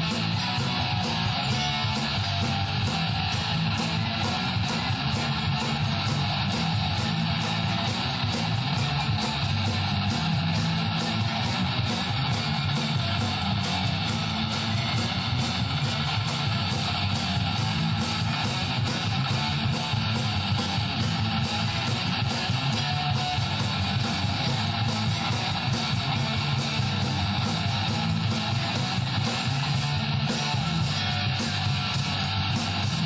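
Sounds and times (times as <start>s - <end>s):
live rock band playing: 0.0s - 33.0s.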